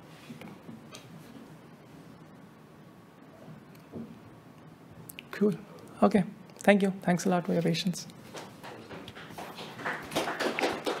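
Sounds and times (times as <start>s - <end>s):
audience applauding: 8.6s - 11.0s.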